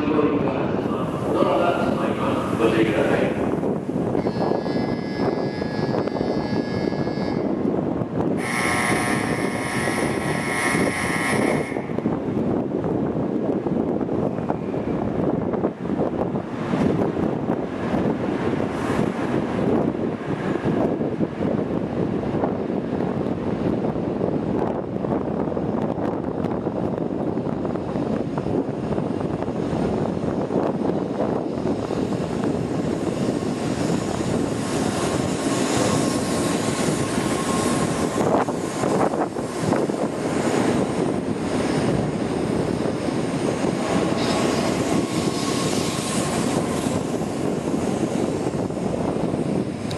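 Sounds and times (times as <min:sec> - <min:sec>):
faint train whine: 0:00.0 - 0:12.6, 0:27.3 - 0:49.9
train rushing past: 0:00.0 - 0:13.1, 0:25.3 - 0:49.9.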